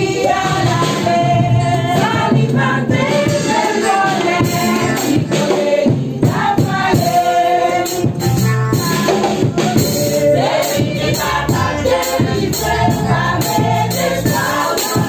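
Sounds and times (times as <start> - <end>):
percussive beat: 0.0 - 15.0
women singing a hymn: 0.0 - 15.0.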